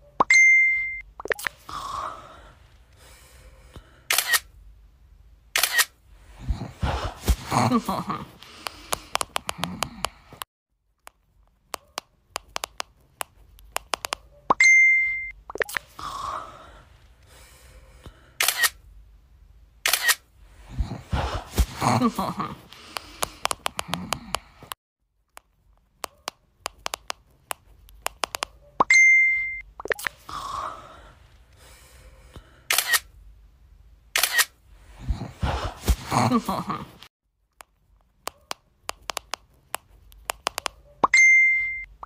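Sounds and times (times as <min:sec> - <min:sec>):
short high beep: 0:00.3 - 0:01.0, 0:14.6 - 0:15.4, 0:28.9 - 0:29.7, 0:41.1 - 0:42.0
camera shutter clicks: 0:04.1 - 0:04.5, 0:05.6 - 0:06.0, 0:18.4 - 0:18.8, 0:19.8 - 0:20.3, 0:32.7 - 0:33.1, 0:34.2 - 0:34.6.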